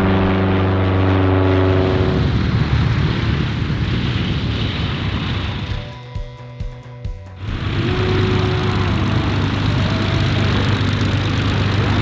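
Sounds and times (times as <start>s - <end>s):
propeller aircraft engine: 0.0s - 12.0s
music with held tones and beat: 5.9s - 7.4s.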